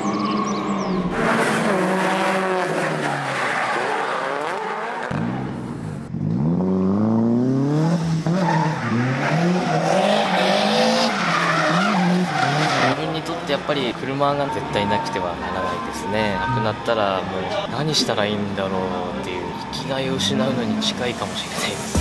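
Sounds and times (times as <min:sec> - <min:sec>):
car engines revving hard: 0:00.0 - 0:16.0, 0:16.7 - 0:22.0
tyres skidding and squealing: 0:00.0 - 0:22.0.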